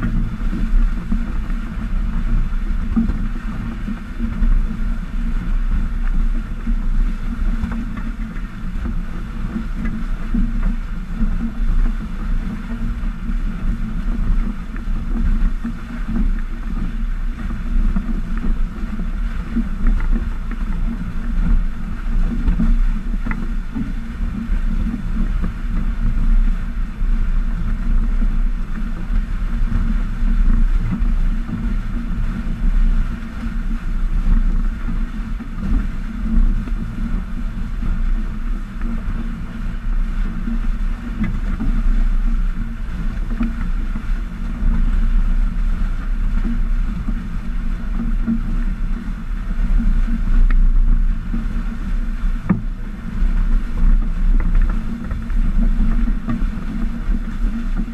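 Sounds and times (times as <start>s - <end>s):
water rushing along hulls: 0.0s - 57.9s
wind rumble on microphone: 0.0s - 57.9s.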